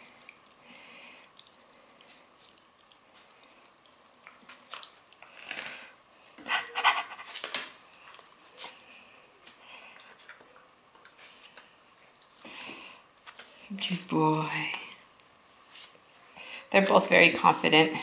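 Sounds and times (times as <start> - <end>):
puppies chewing on a hand: 0.0 - 5.4, 6.9 - 13.6
breathy puppy sounds: 6.4 - 7.4.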